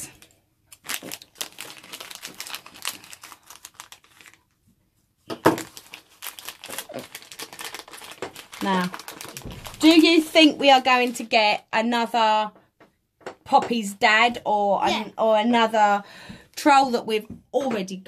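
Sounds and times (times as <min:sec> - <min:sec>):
plastic bag crinkling: 0:00.0 - 0:04.6, 0:05.3 - 0:11.4.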